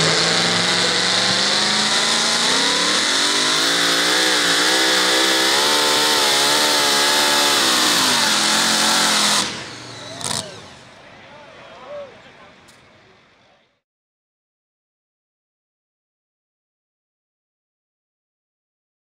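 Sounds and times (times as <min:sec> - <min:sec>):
engine at full throttle: 0:00.0 - 0:11.0.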